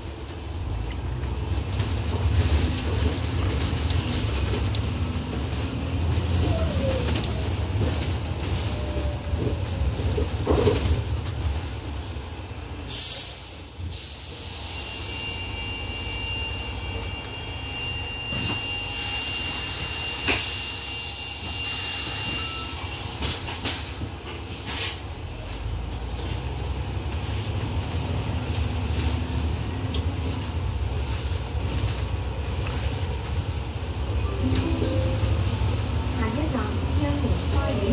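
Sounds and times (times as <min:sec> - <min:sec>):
bus engine and road rumble: 0:00.0 - 0:37.9
loud burst of hiss: 0:12.9 - 0:15.3.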